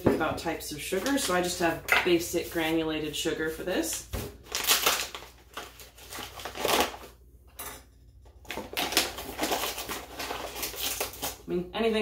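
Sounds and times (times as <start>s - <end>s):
paper bag crinkling: 4.4s - 7.1s, 8.4s - 11.4s.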